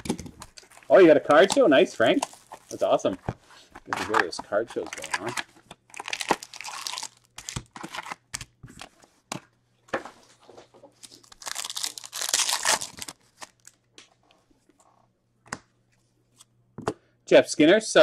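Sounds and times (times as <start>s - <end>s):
foil pack crinkling: 4.2s - 8.2s, 11.0s - 13.8s
foil pack tearing open: 5.0s - 8.2s, 11.2s - 13.7s.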